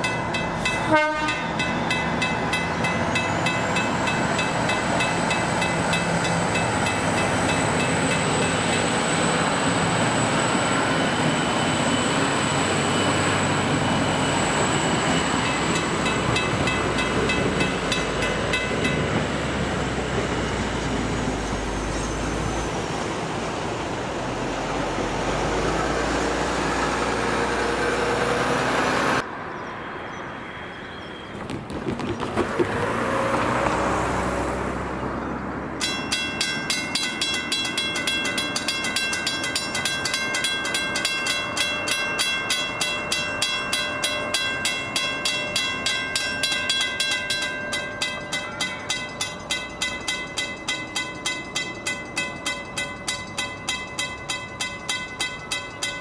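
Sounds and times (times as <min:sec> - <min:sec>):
crossing bell ringing: 0:00.0 - 0:22.2, 0:35.8 - 0:56.0
train wheels rumbling on rails: 0:00.0 - 0:29.2, 0:31.3 - 0:34.2, 0:35.8 - 0:56.0.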